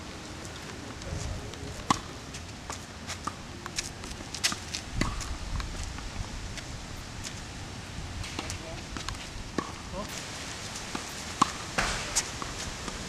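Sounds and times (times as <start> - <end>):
footsteps and scuffs on court: 0.4 - 7.5
tennis ball bouncing: 1.8 - 2.1, 2.7 - 5.9, 8.2 - 10.1, 10.9 - 13.0
racket striking tennis ball: 1.9 - 2.1, 3.2 - 5.7, 8.2 - 9.8, 10.9 - 12.5.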